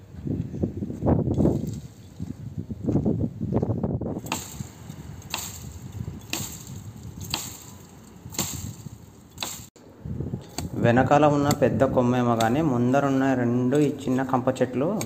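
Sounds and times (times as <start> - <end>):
axe chopping branches: 4.2 - 9.7, 10.4 - 10.8, 11.4 - 12.7.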